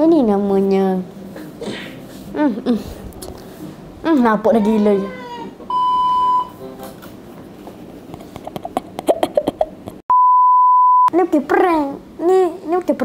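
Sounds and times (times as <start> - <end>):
censor bleeps: 5.7 - 6.6, 10.1 - 11.1.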